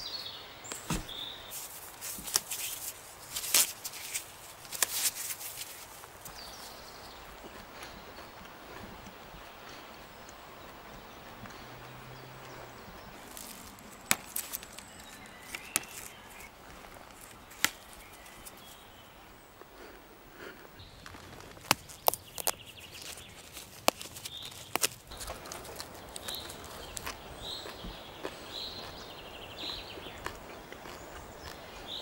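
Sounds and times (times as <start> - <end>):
bird chirping: 0.0 - 1.7, 6.2 - 19.6, 20.8 - 32.0
plant stems snapping and crackling: 0.7 - 6.4, 13.1 - 18.8, 21.0 - 29.0.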